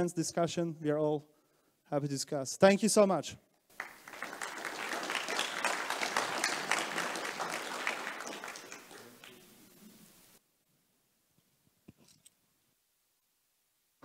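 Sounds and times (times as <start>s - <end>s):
audience applauding: 3.7s - 9.8s.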